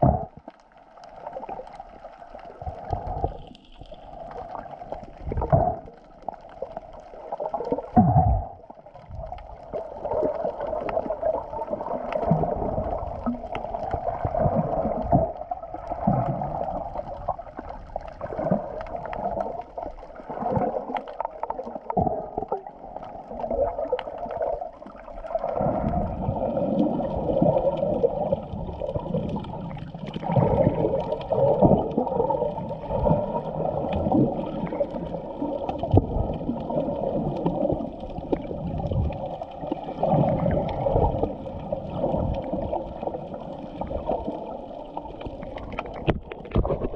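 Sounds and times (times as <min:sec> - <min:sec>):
muffled underwater gurgling: 0:00.0 - 0:46.9.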